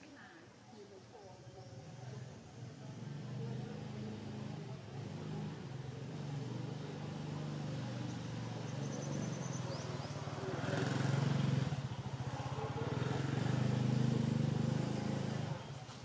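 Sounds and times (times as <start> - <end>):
vehicle engine running: 2.6 - 16.0.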